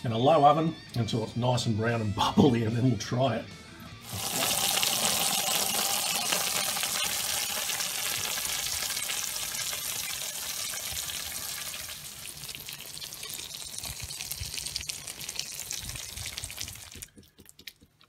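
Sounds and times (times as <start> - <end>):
cheese sizzling with crackles: 4.0 - 17.3.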